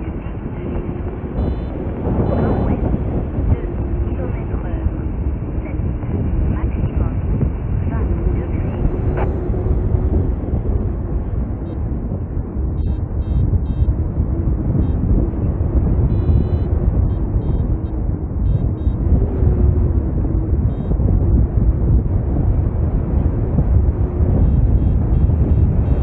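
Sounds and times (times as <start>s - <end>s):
wind over microphone: 0.0s - 26.0s
high electronic beeps: 1.4s - 2.7s, 12.8s - 13.9s, 16.1s - 16.7s, 17.4s - 17.7s, 18.5s - 19.0s.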